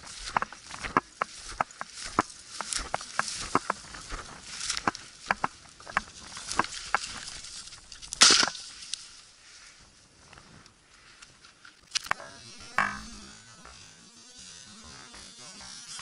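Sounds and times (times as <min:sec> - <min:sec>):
footsteps crunching dry grass: 0:00.0 - 0:16.0
sharp clicks: 0:11.8 - 0:13.8.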